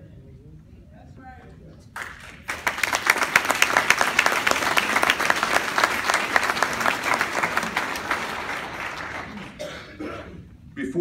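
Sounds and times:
audience applauding: 0:02.0 - 0:09.6.

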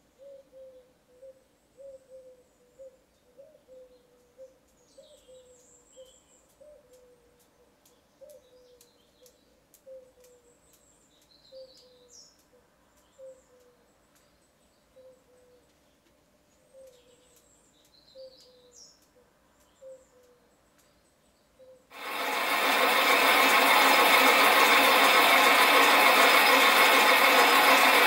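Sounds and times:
light ticks and high chirps: 0:03.9 - 0:21.3.

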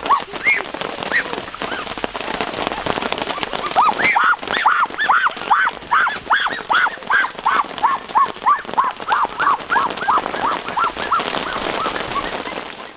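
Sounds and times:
animal calling: 0:03.3 - 0:12.7.

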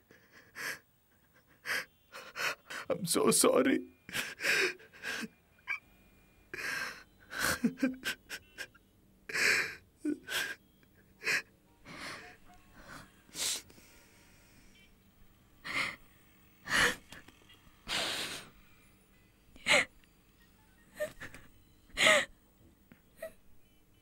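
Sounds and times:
man sobbing: 0:04.1 - 0:05.8, 0:06.6 - 0:13.5, 0:20.9 - 0:22.3.

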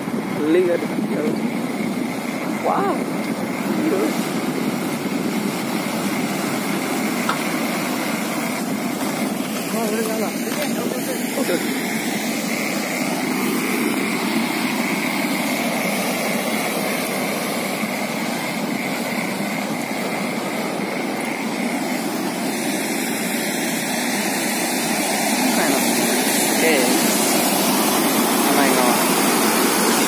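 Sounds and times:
floodwater rushing: 0:00.0 - 0:30.0.

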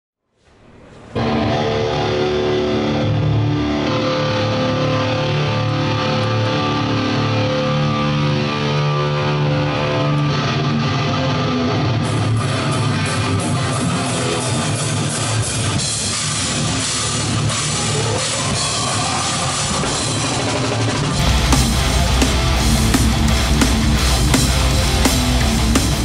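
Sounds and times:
distorted electric guitar chords: 0:01.1 - 0:26.0
drum kit and cymbals: 0:12.6 - 0:26.0.

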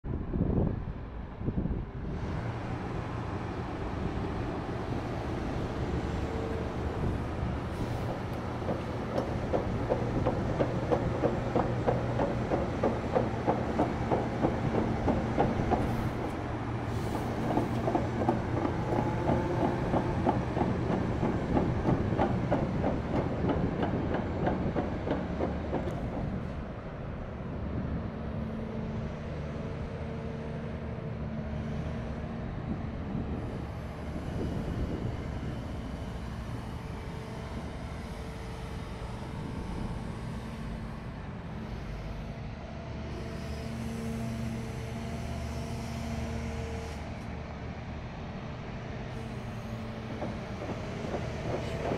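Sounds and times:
excavator tracks clanking: 0:05.2 - 0:26.7, 0:49.2 - 0:51.9.

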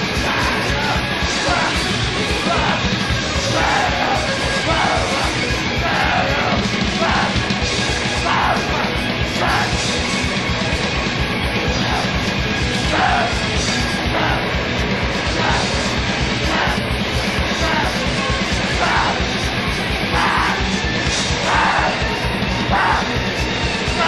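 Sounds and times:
shouted vocals: 0:00.0 - 0:10.2, 0:11.4 - 0:24.0
distorted instruments: 0:00.0 - 0:24.0
fast dense drumming: 0:00.0 - 0:24.0.

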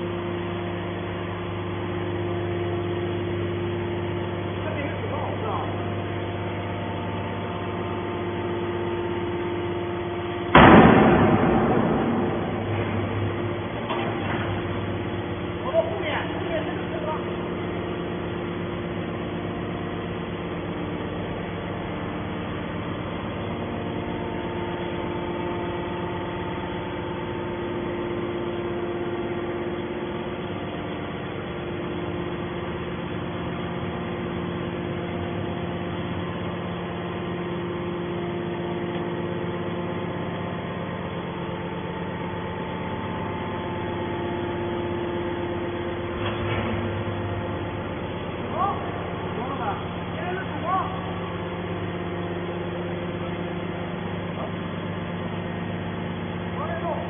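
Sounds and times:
scrap baler humming: 0:00.0 - 0:57.0
noisy clatter: 0:10.2 - 0:18.3, 0:42.3 - 0:51.2.

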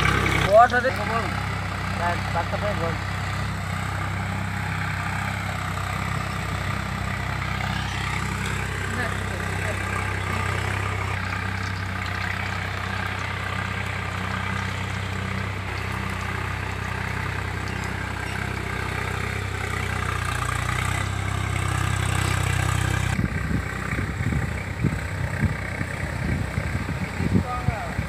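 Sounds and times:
engine idling hum: 0:00.0 - 0:28.0
wind buffeting microphone: 0:23.2 - 0:28.0.

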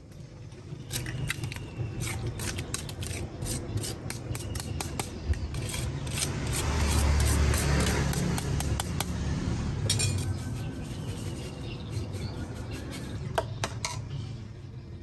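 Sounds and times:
metal spoon scraping a colander: 0:00.8 - 0:08.9, 0:09.8 - 0:13.2.

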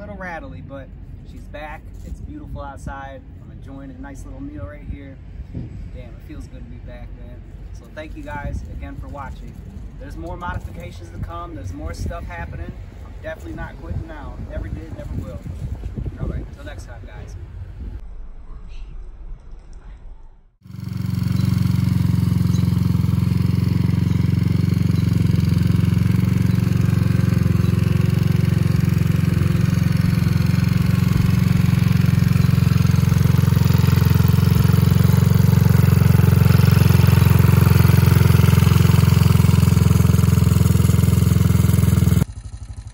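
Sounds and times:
scooter engine running: 0:20.6 - 0:42.9.

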